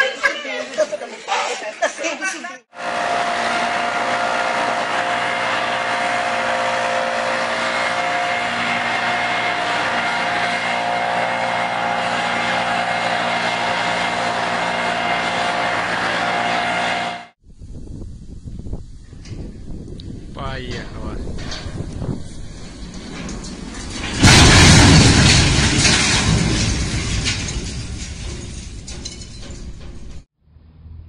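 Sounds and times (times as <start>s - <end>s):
leaf blower engine running: 2.7s - 17.4s.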